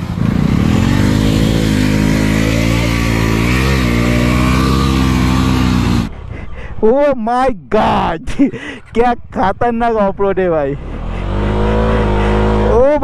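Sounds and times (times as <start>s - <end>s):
motorcycle engine under load: 0.0s - 6.2s.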